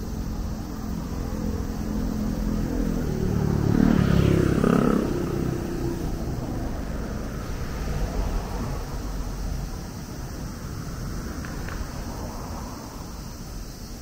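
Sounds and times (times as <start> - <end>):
motor vehicle passing: 0.3 - 13.6.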